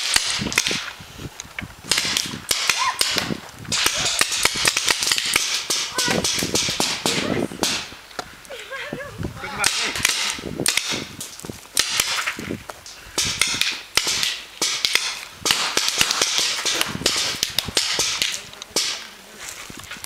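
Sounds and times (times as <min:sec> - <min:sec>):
paintball markers firing: 0:01.9 - 0:08.3, 0:09.6 - 0:11.2, 0:11.8 - 0:12.4, 0:13.2 - 0:19.2.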